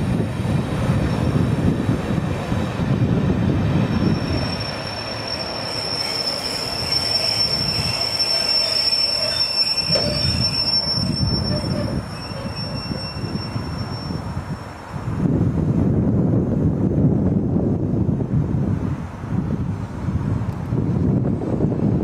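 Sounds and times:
low rumble of train: 0.0 - 22.0
high-pitched wheel squeal: 3.7 - 14.8.

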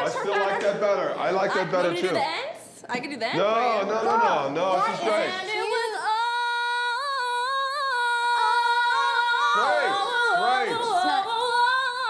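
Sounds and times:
woman singing a cappella: 4.8 - 12.0.

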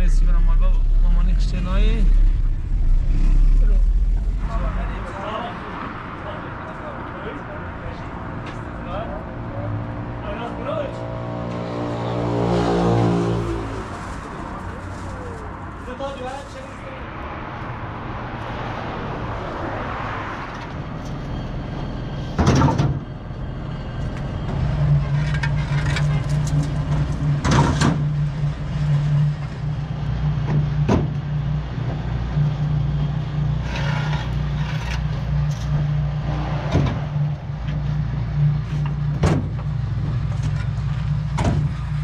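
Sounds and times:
vehicle engine running: 0.0 - 5.2, 23.3 - 42.0.

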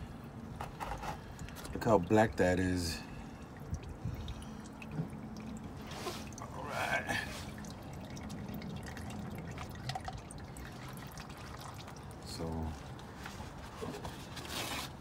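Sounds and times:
oil dripping into a pan: 0.2 - 13.2.

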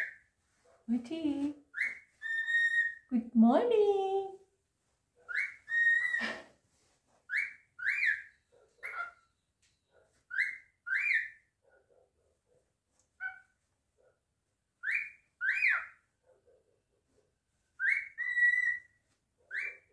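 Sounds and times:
cockatiel whistling: 1.8 - 3.0, 7.3 - 9.1, 17.8 - 18.8.

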